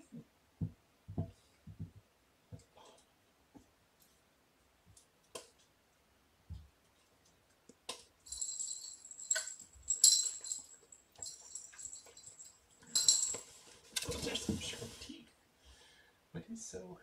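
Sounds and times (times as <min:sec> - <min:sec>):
jingle bell ringing in ball: 0:08.3 - 0:13.5.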